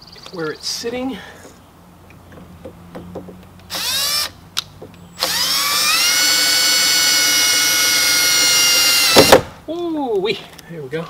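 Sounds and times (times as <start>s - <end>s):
cordless drill whining: 3.7s - 4.3s, 5.2s - 9.4s.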